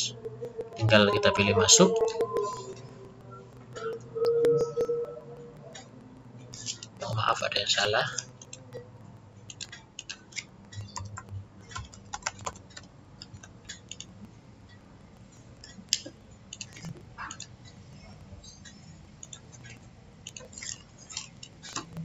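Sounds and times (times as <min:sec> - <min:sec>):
computer keyboard key clicks: 0:09.5 - 0:14.1.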